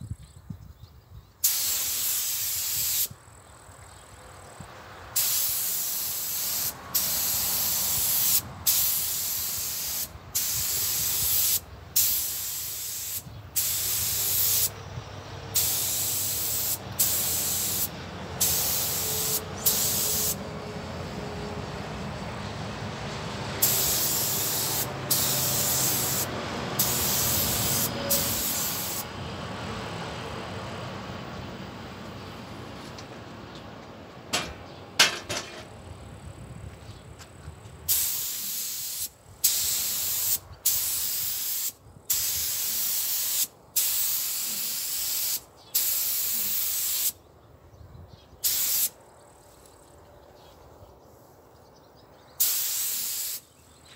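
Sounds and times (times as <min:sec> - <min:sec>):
paint spray gun hissing: 0:01.4 - 0:03.1, 0:05.2 - 0:14.8, 0:15.5 - 0:20.4, 0:23.6 - 0:29.1, 0:37.9 - 0:47.2, 0:48.4 - 0:48.9, 0:52.4 - 0:53.5.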